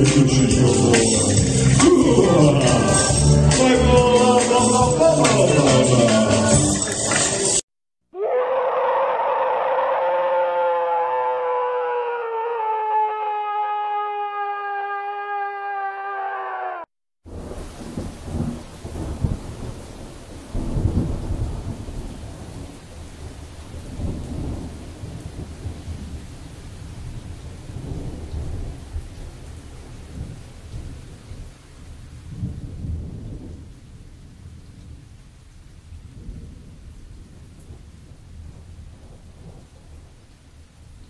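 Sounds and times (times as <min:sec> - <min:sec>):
steady rain: 0:00.0 - 0:03.5, 0:17.3 - 0:41.0
thunder rumbling: 0:17.3 - 0:35.2, 0:36.0 - 0:40.2.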